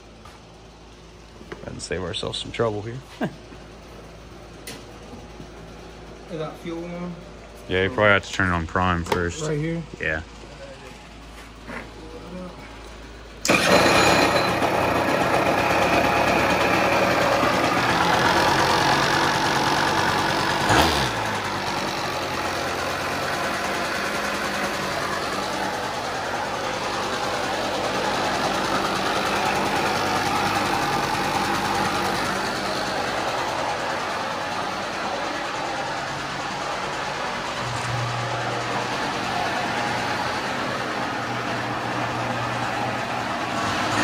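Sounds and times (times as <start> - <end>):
two-stroke engine starting and idling: 13.1 - 44.0.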